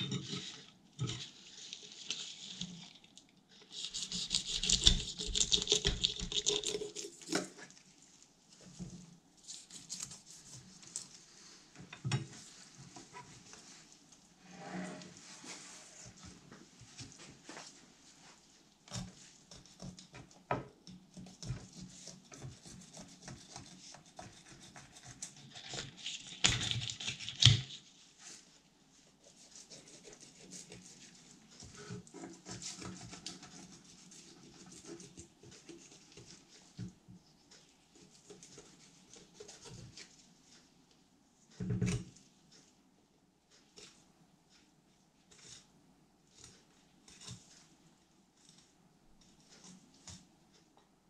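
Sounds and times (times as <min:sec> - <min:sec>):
knife scraping along fish bones: 0:21.2 - 0:27.8, 0:29.2 - 0:36.4.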